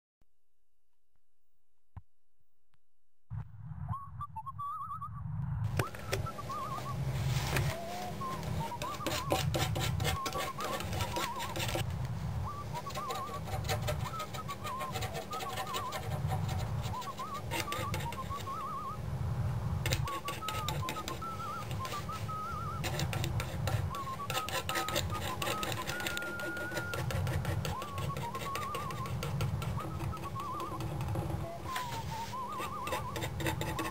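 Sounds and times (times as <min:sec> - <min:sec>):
warbling whistled notes: 0:03.8 - 0:11.6, 0:12.4 - 0:15.9, 0:16.8 - 0:19.0, 0:20.1 - 0:23.1, 0:27.7 - 0:33.9
palette knife scraping paint: 0:08.6 - 0:11.9, 0:12.8 - 0:18.6, 0:19.8 - 0:33.9.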